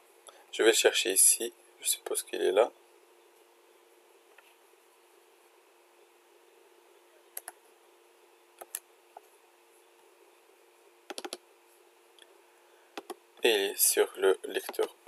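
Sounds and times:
faint steady hum: 0:00.0 - 0:15.0
computer mouse clicks: 0:07.4 - 0:07.6, 0:08.6 - 0:08.8, 0:11.1 - 0:11.4, 0:13.0 - 0:13.2.

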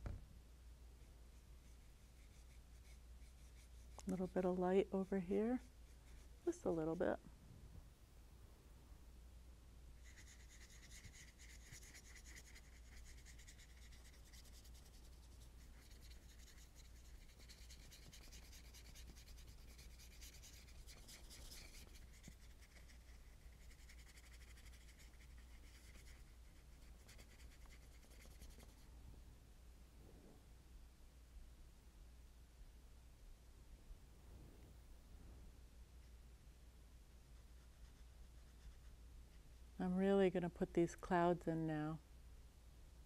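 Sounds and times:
low steady hum: 0:00.0 - 0:43.0
paintbrush scrubbing on paper: 0:01.0 - 0:07.0, 0:10.0 - 0:28.9, 0:37.3 - 0:39.4.

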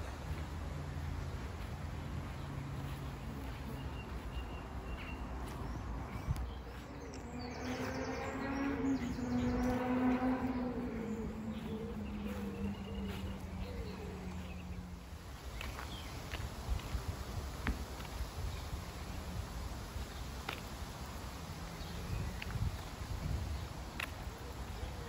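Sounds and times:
steady low rumble: 0:00.0 - 0:15.6
birds chirping: 0:00.0 - 0:25.0
motor hum passing by: 0:07.1 - 0:15.1.

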